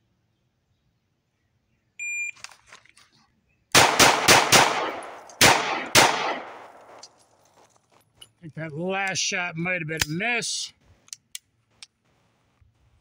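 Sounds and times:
pistol shots echoing: 3.7 - 7.1.

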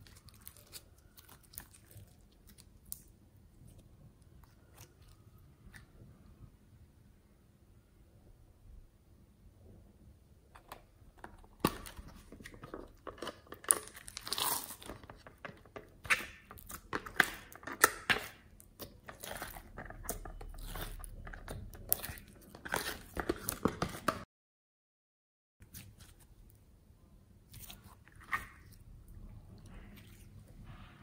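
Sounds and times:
slime crackling and popping: 11.6 - 15.3.

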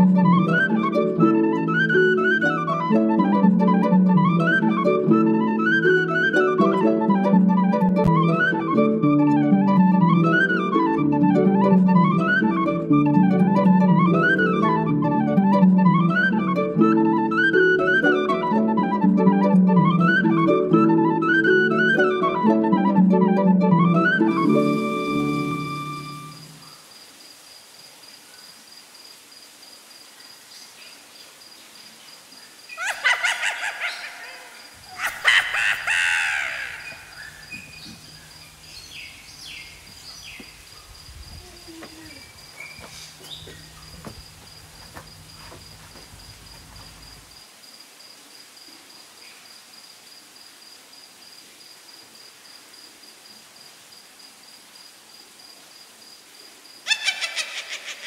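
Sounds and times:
crow cawing: 32.8 - 37.7.

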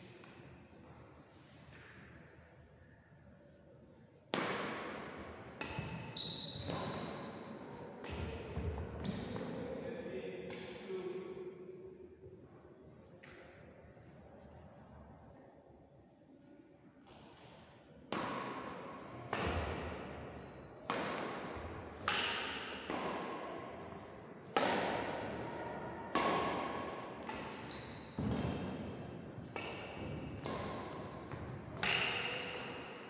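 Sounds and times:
rackets striking shuttlecock: 4.3 - 5.0, 5.6 - 7.3, 8.0 - 9.3, 18.1 - 20.2, 20.8 - 23.5, 24.5 - 25.3, 26.1 - 32.8.

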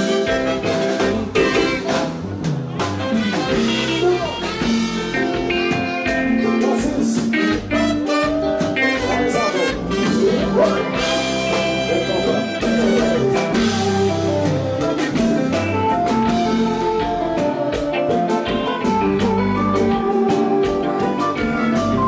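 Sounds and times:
congas: 0.0 - 22.0
drum kit: 0.0 - 22.0
electric guitar: 0.0 - 22.0.

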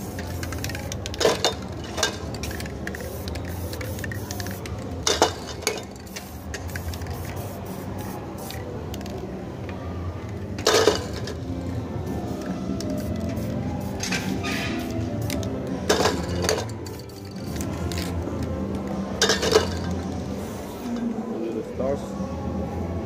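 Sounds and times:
spray paint can hissing: 0.0 - 9.2, 12.2 - 18.2.

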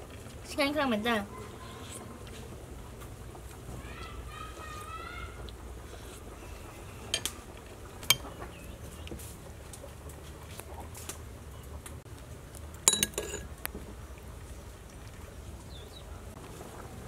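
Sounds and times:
faint steady background noise: 0.0 - 17.0
metal spoon clinking on bowl: 12.9 - 13.5.

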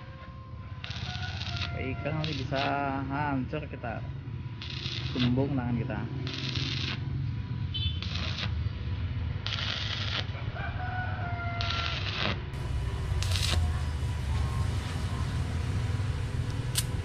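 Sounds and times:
rooster crowing: 0.0 - 2.7, 10.3 - 12.2
welding arc crackle and hiss: 0.8 - 3.1, 4.6 - 7.1, 7.8 - 8.6, 9.4 - 10.4, 11.6 - 15.4, 16.4 - 17.0.

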